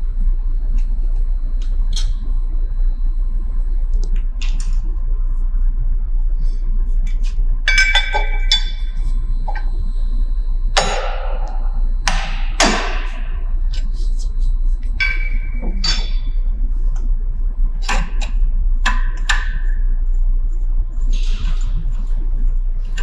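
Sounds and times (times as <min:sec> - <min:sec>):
steady low hum: 0:00.0 - 0:23.0
ringing metal clink: 0:07.7 - 0:09.0.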